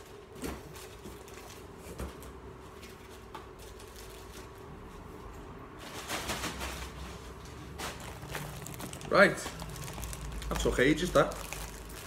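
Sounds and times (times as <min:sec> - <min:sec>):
packing peanuts rustling: 0:07.7 - 0:12.0.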